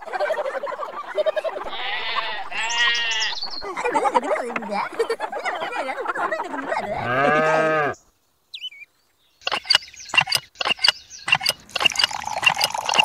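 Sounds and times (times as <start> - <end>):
wavering voice-like cry: 1.5 - 4.0
hand pump handle clicking: 9.5 - 13.0.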